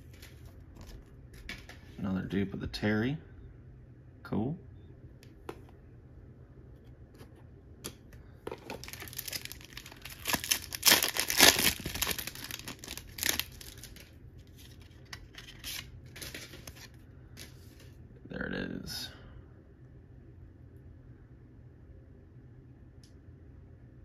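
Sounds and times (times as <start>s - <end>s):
wrapper tearing and crinkling: 8.6s - 17.0s.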